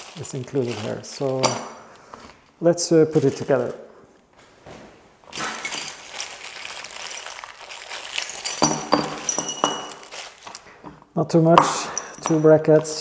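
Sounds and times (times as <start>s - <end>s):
plastic bag crinkling: 0.0s - 2.4s, 3.1s - 3.8s, 5.3s - 10.8s
metal parts clinking on bench: 1.4s - 1.8s, 5.4s - 6.1s, 8.2s - 10.7s, 11.5s - 13.0s.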